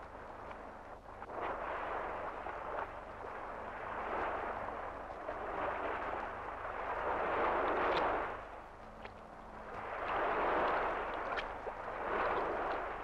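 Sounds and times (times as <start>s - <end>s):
surf washing over rocks: 9.8s - 13.0s.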